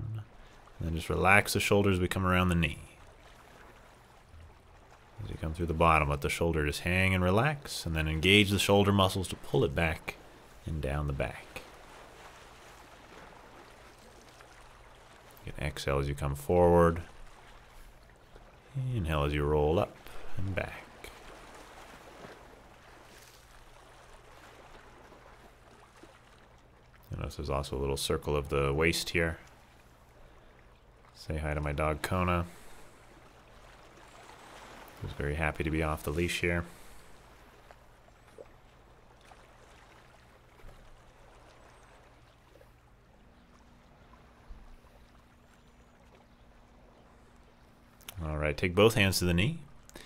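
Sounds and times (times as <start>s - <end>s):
low steady hum: 0.0s - 50.0s
waves lapping on rocky shore: 0.2s - 27.0s, 28.6s - 48.0s.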